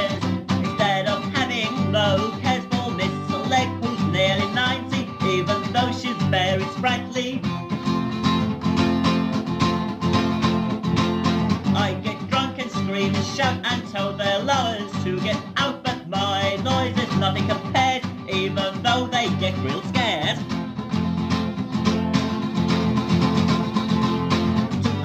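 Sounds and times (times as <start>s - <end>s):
person singing: 0.0s - 7.8s, 11.6s - 20.5s, 24.8s - 25.0s
guitar accompaniment: 0.0s - 25.0s.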